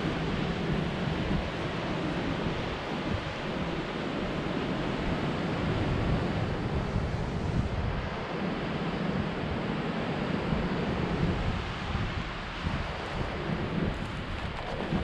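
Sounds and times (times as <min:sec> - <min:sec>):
wind buffeting microphone: 0:00.0 - 0:15.0
surf breaking over rocks: 0:13.4 - 0:15.0.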